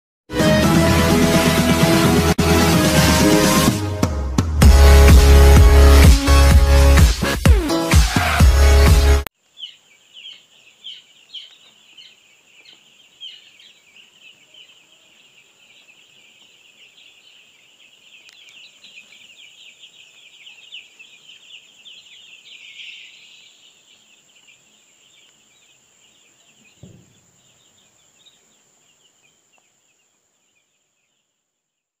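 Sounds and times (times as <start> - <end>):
chicks peeping: 9.4 - 31.4
low thump: 26.8 - 27.3.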